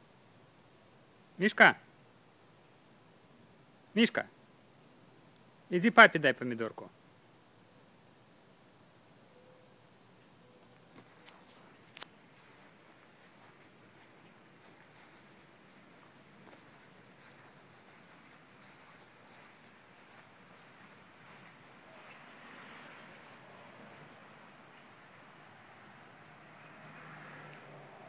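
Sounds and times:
high-pitched insect chorus: 0.0 - 28.0
faint rustling: 9.0 - 24.2.

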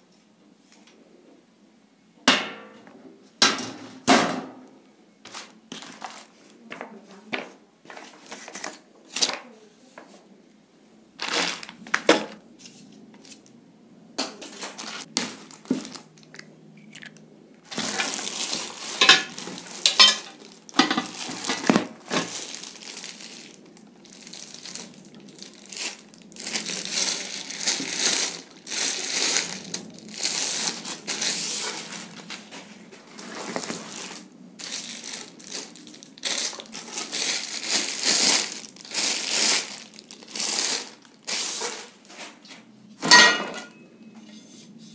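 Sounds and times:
plastic wrap crinkling: 5.3 - 7.3, 14.4 - 42.1.

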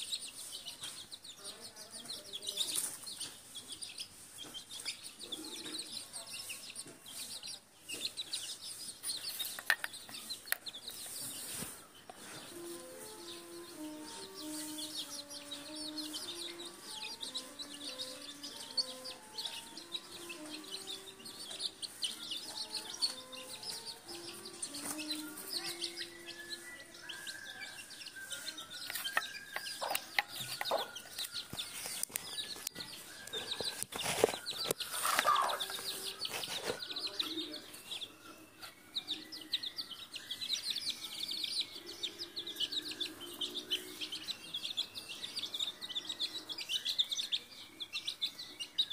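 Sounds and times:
chicks peeping: 0.0 - 48.9
hen clucking: 34.9 - 36.6.

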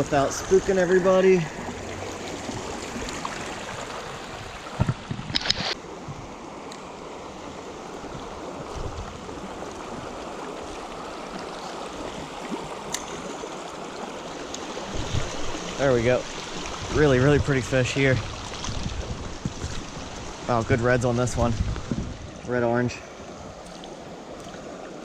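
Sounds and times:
creek water rushing: 0.0 - 25.0.

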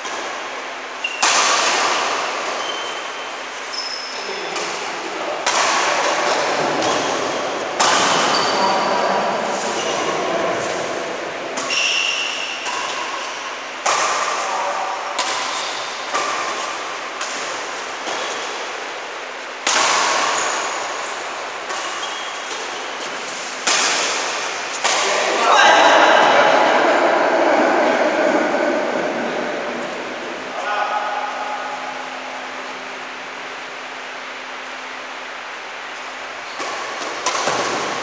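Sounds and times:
racket striking shuttlecock: 1.1 - 3.2, 4.5 - 8.6, 11.5 - 19.0, 19.6 - 25.5, 36.5 - 38.0.

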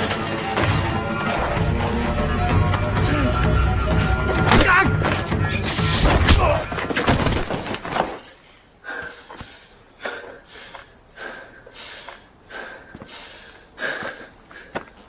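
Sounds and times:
man breathing hard: 8.4 - 15.0.

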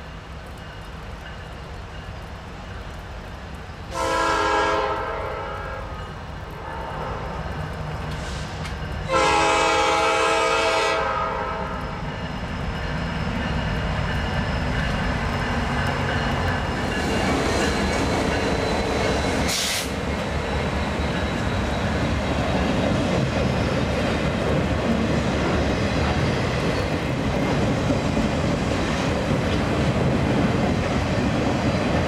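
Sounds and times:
train wheels on rails: 0.0 - 32.0
train air horn blasts: 3.9 - 6.0, 8.2 - 11.8
locomotive engines: 11.7 - 28.4.

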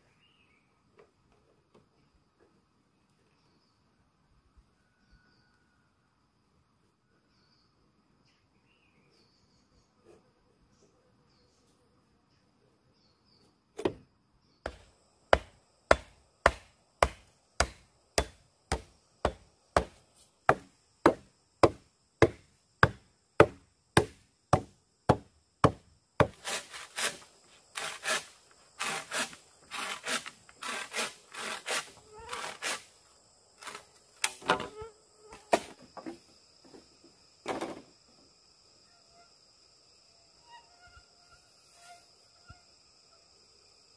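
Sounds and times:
insects buzzing: 0.0 - 43.9
hammer driving wooden post: 14.7 - 27.2.

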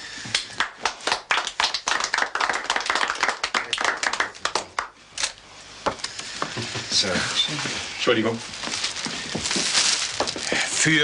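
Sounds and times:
people clapping: 0.3 - 5.0.

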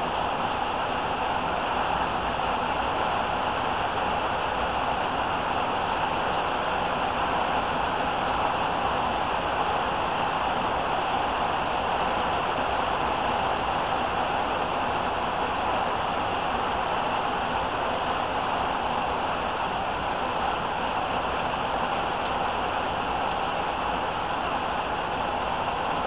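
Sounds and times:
heavy rain pouring: 0.0 - 26.0.

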